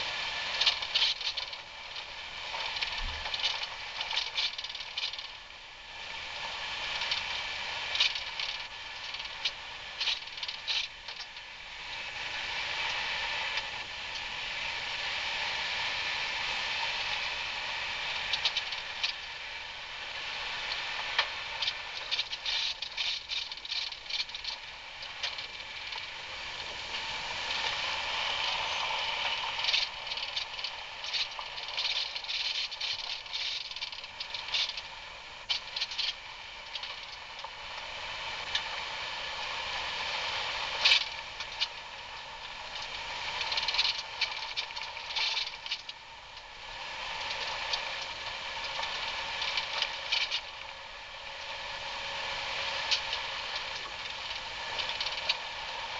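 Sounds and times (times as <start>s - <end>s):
off-road vehicle running: 0.0s - 55.9s
rattles and clatters: 0.5s - 5.4s, 21.2s - 26.1s, 28.6s - 34.9s, 42.8s - 46.0s.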